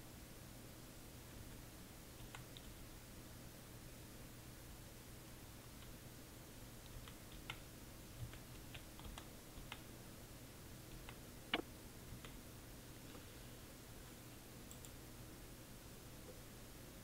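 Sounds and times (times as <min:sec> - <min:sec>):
keystrokes on computer keyboard: 0:02.2 - 0:02.8, 0:06.8 - 0:09.9, 0:10.9 - 0:12.4, 0:14.7 - 0:15.0.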